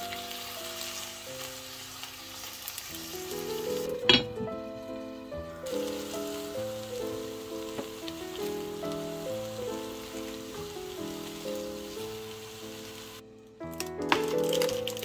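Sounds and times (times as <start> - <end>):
background music: 0.0 - 15.0
cabbage sizzling in a frying pan: 0.0 - 15.0
glass lid clinking: 4.1 - 4.5.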